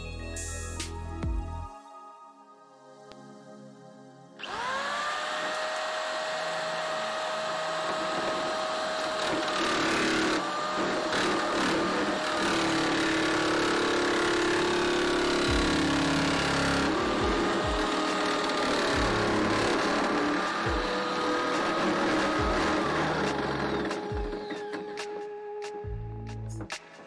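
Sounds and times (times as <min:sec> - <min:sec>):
electric metal nibbler whining: 0:04.4 - 0:25.0
sheet metal cutting chatter: 0:06.5 - 0:24.1.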